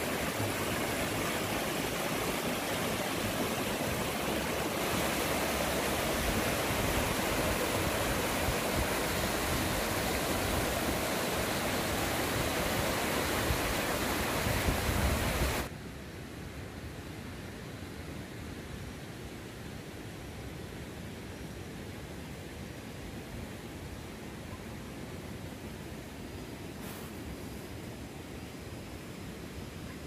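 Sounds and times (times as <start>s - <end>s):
river rushing over rocks: 0.0s - 15.7s.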